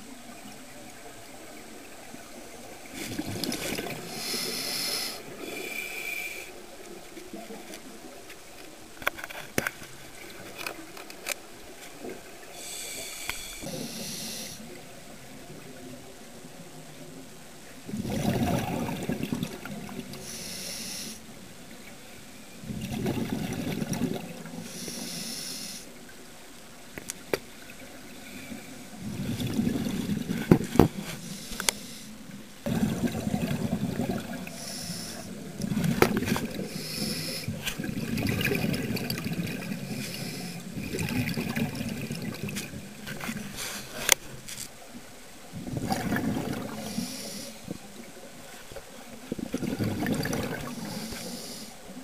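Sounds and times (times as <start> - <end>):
bubbling exhaled air: 2.9 - 6.4, 17.9 - 21.2, 22.6 - 25.8, 28.2 - 44.2, 45.6 - 47.9, 49.3 - 51.7
regulator inhalation hiss: 4.1 - 6.5, 12.6 - 14.7, 20.2 - 21.2, 24.6 - 25.9, 31.0 - 32.2, 34.5 - 35.4, 36.7 - 37.6, 39.8 - 40.7, 46.8 - 47.7, 50.7 - 51.8.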